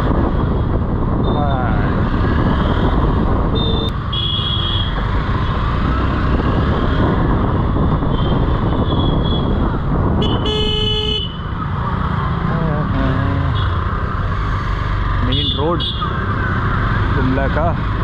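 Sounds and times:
wind rush: 0.0 - 4.1, 4.9 - 14.4
vehicle horns honking: 3.6 - 5.0, 10.2 - 11.4.

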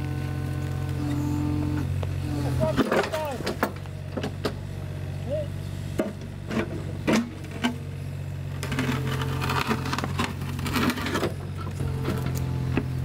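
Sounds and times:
excavator diesel engine running: 0.0 - 13.0
bucket knocking and scraping earth: 2.5 - 4.6, 8.6 - 13.0.

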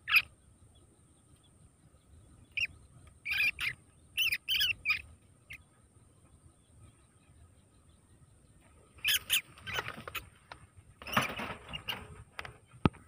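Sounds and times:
rats squealing: 0.0 - 0.3, 2.5 - 5.6, 9.0 - 10.3.

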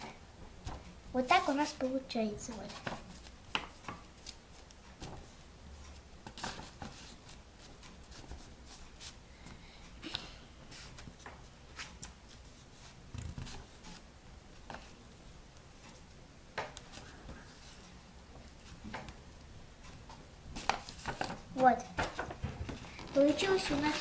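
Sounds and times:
paper rustling: 0.6 - 5.4, 6.2 - 9.2, 10.7 - 15.0, 20.5 - 24.0.

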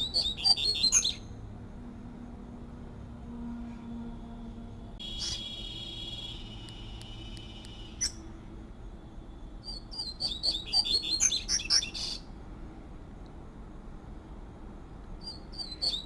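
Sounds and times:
bird whistling song: 0.0 - 1.3, 5.0 - 8.2, 9.6 - 12.3, 15.2 - 16.0.

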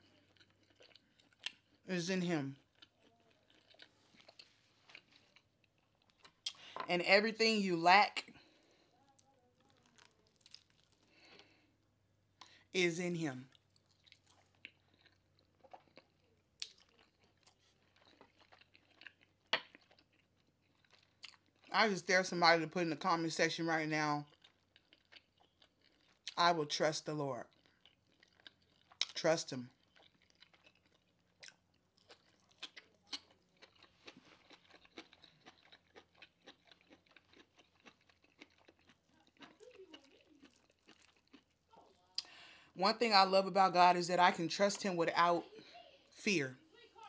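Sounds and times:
chewing meat: 0.0 - 6.8, 8.2 - 11.8, 13.5 - 21.7, 24.2 - 26.4, 27.4 - 42.6
sharp mouth clicks: 6.4 - 6.7.

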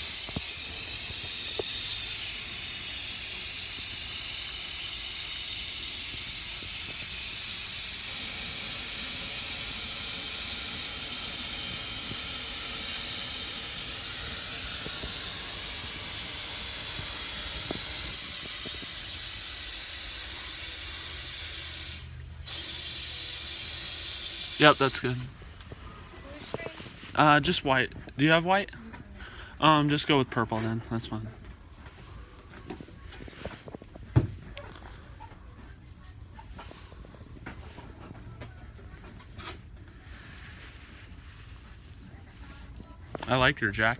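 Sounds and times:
helium hissing into balloon: 0.0 - 25.3.

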